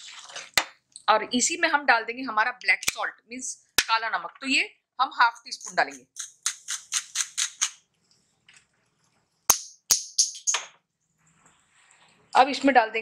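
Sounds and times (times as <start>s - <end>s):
sharp clicks: 5.8s - 7.8s.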